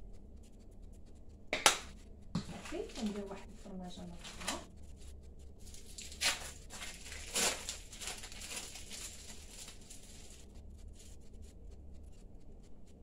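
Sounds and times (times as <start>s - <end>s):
soft rustling of food handling: 2.0s - 12.2s.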